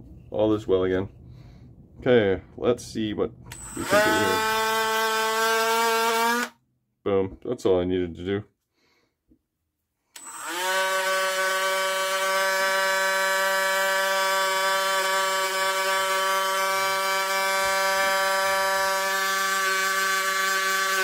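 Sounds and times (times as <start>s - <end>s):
rotary tool whining: 3.5s - 6.6s, 10.2s - 21.0s.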